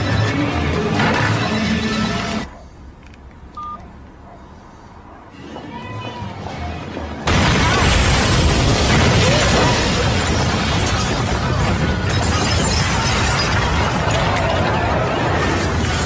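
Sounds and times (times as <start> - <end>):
debris crashing down: 7.3 - 16.0
explosion blast rumbling: 7.3 - 16.0.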